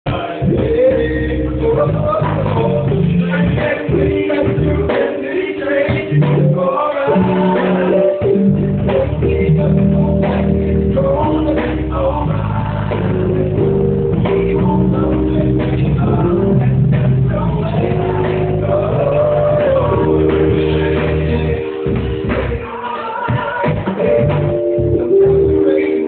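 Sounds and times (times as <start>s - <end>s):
bass: 0.0s - 26.0s
keyboard chords: 0.1s - 26.0s
live band music: 0.1s - 26.0s
person singing: 0.1s - 26.0s.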